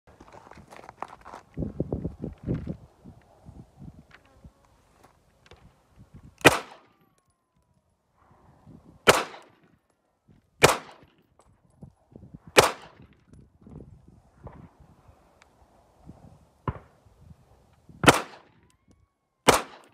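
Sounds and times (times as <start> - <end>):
pistol shots with echo: 6.4 - 7.0, 9.0 - 9.6, 10.6 - 11.1, 12.6 - 13.0, 18.0 - 18.5, 19.5 - 19.9.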